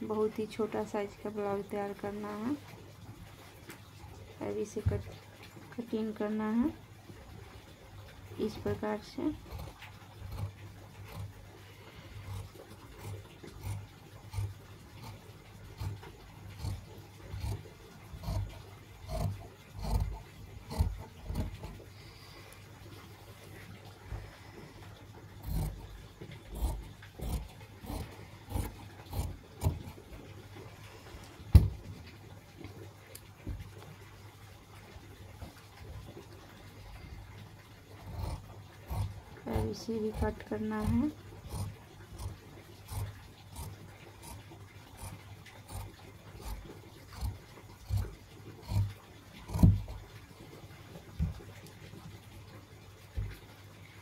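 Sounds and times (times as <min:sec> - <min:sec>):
scissors snipping fabric: 0:08.4 - 0:11.4, 0:12.2 - 0:21.8, 0:25.4 - 0:30.0, 0:38.0 - 0:50.0.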